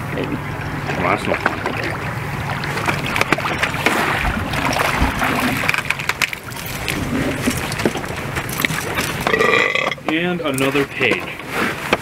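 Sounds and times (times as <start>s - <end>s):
outboard motor running: 0.0s - 12.0s
water noise: 0.0s - 12.0s
wind: 0.0s - 12.0s
fishing gear clicks and knocks: 4.7s - 12.0s.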